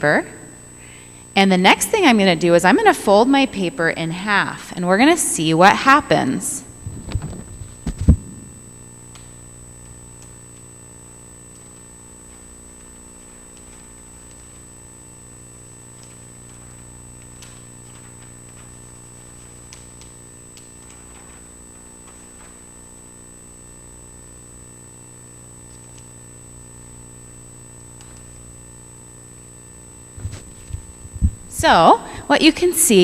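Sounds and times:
electrical hum with high whine: 0:00.0 - 0:33.0
paper rustling and tapping: 0:11.5 - 0:14.8, 0:15.6 - 0:22.9, 0:30.2 - 0:31.4
dull thumps: 0:30.2 - 0:31.6.

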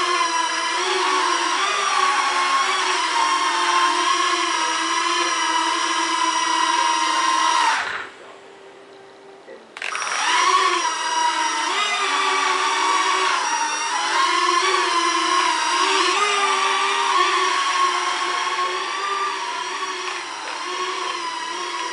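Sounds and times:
quadcopter propellers whining: 0:00.0 - 0:08.2, 0:09.8 - 0:21.9.

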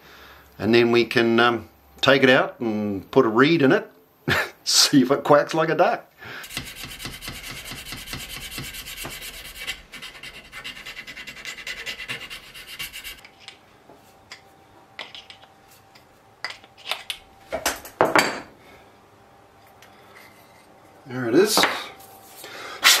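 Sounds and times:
hand file rasping on wood: 0:06.4 - 0:13.2.

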